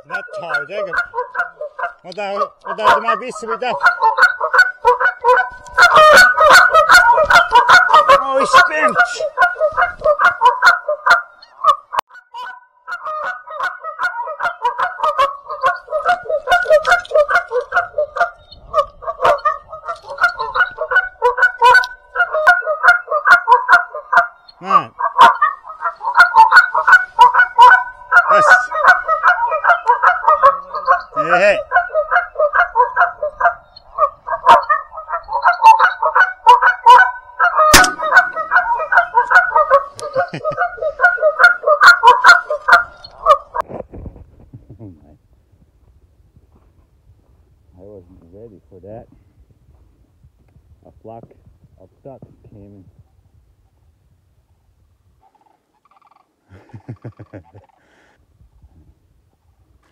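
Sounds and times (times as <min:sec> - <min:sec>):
geese honking: 0:00.0 - 0:43.6.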